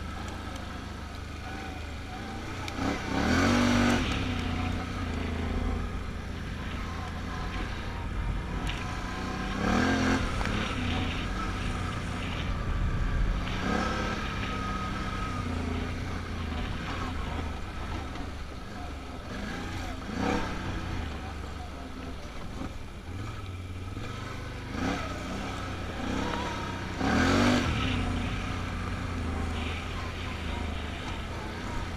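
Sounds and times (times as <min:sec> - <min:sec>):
atv engine revving: 0:00.0 - 0:31.9.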